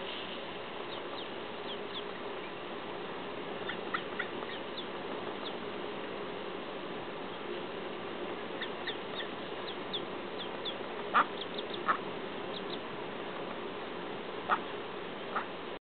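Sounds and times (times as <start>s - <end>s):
low background hum: 0.0s - 15.8s
duckling peeping: 0.8s - 2.7s, 3.6s - 5.7s, 7.2s - 7.6s, 8.4s - 13.6s, 14.4s - 15.6s.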